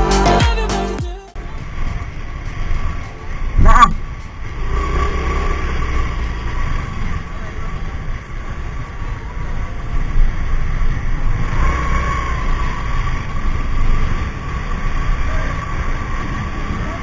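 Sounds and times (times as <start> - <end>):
scooter engine running: 1.4 - 17.0.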